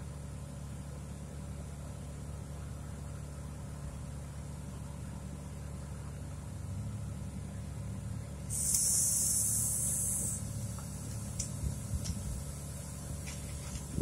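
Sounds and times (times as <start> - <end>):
engine idling hum: 0.0 - 14.0.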